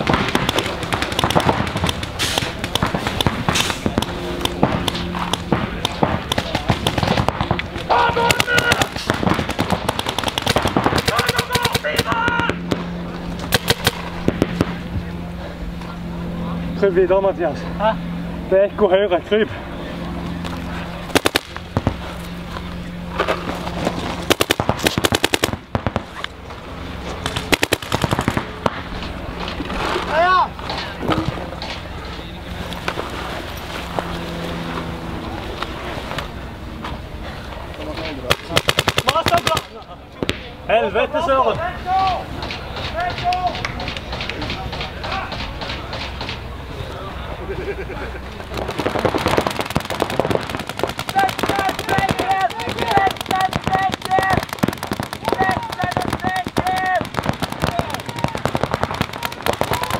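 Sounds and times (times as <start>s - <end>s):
paintball guns popping: 0.0s - 14.8s, 21.1s - 22.0s, 24.2s - 26.4s, 27.2s - 29.6s, 38.0s - 40.5s, 48.5s - 59.9s
steady low hum: 0.0s - 59.9s.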